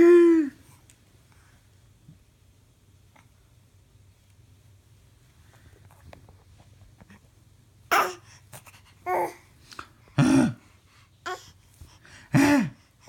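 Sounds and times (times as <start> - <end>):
baby babbling: 7.9 - 8.3, 9.0 - 9.4, 11.2 - 11.6.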